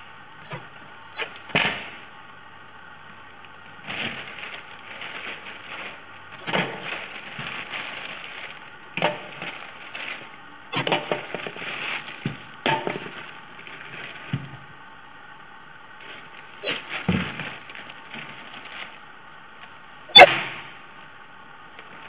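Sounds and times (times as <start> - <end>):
hard bread rolls knocking on metal: 12.2 - 13.2.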